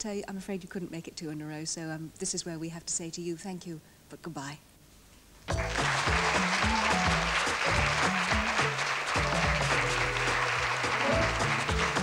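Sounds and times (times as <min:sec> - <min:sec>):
audience applause: 0:05.5 - 0:12.0
game show theme music: 0:05.5 - 0:12.0.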